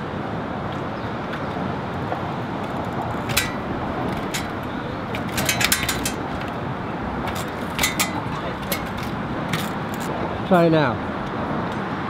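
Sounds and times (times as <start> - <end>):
traffic noise: 0.0 - 12.0
sharp metallic clicks: 2.6 - 10.2.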